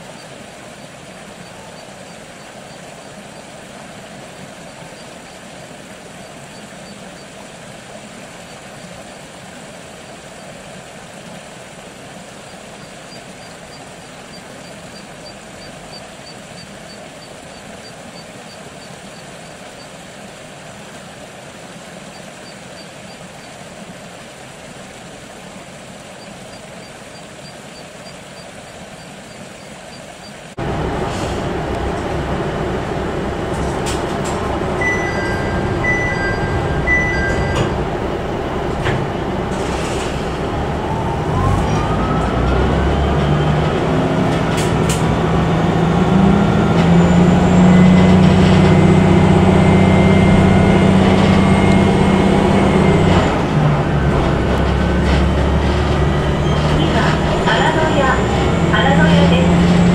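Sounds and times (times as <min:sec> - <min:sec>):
faint outdoor ambience: 0:00.0 - 0:59.9
diesel railcar engine: 0:30.3 - 0:59.9
short electronic beeps: 0:34.7 - 0:37.8.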